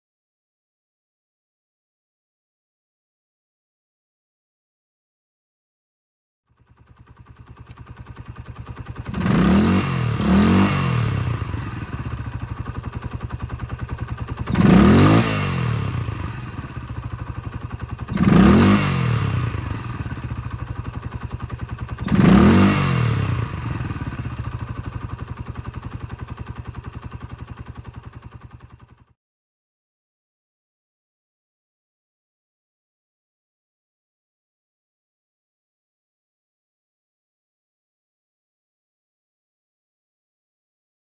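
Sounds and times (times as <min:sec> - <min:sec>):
motorcycle engine idling and revving: 0:06.5 - 0:29.2.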